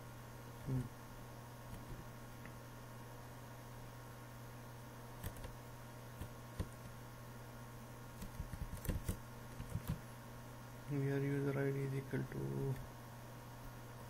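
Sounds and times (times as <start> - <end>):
steady low hum: 0.0 - 14.0
keyboard and mouse clicking: 5.2 - 5.5, 8.2 - 10.0.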